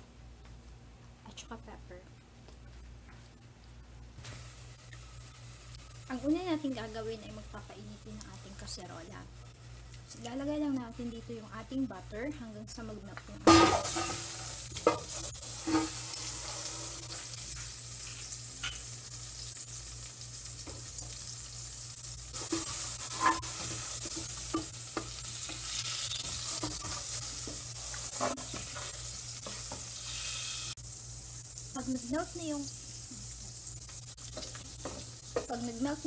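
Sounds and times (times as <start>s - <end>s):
butter sizzling in a pot: 4.2s - 36.0s
spatula scraping and knocking pot: 22.4s - 29.9s.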